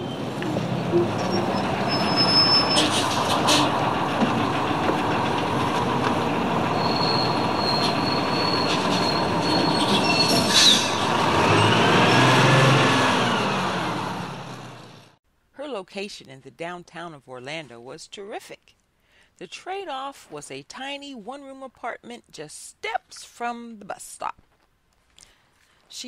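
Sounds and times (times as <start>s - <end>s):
bus engine running: 0.0s - 15.2s
rising and falling engine tone: 0.0s - 15.2s
high-pitched brake squeals: 0.9s - 3.8s, 6.7s - 11.8s.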